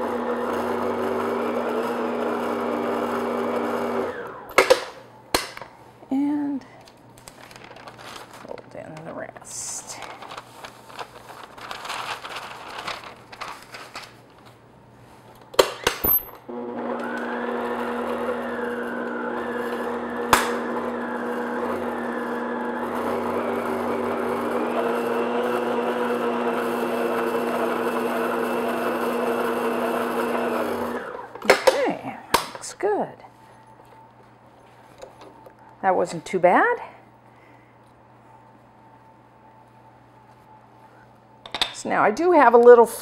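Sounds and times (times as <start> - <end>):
electric stand mixer humming: 0.0 - 4.6, 16.5 - 31.4.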